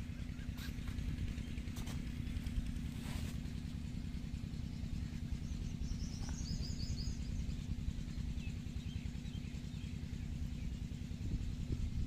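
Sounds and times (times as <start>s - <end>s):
bird trill: 0.0s - 1.8s, 5.0s - 10.9s
low outdoor rumble: 0.0s - 12.0s.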